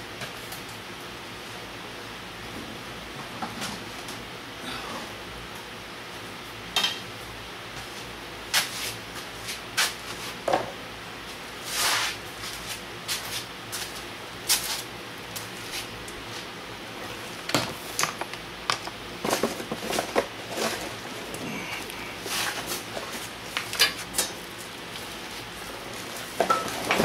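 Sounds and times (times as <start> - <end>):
steady room hum: 0.0 - 27.0
rustle: 11.6 - 16.5.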